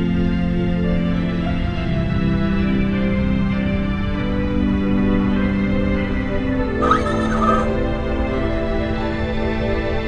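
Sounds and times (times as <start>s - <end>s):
sustained film score chords: 4.4s - 10.0s.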